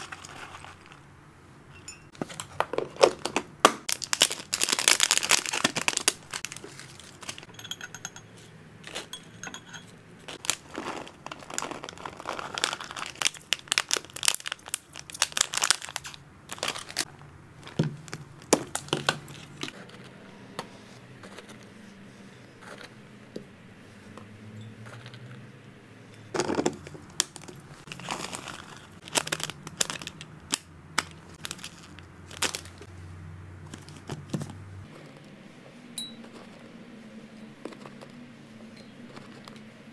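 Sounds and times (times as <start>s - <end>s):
plastic bag crinkling: 0.0s - 1.1s, 2.7s - 7.5s, 10.3s - 19.9s, 26.3s - 32.9s
pellets rattling in plastic box: 3.9s - 7.5s, 10.4s - 17.1s.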